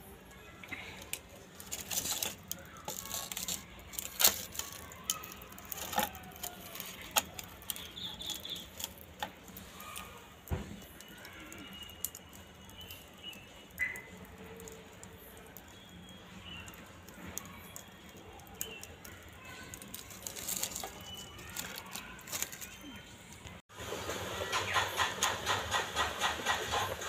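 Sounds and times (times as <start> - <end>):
knocks and clicks of firewood: 1.0 - 15.9.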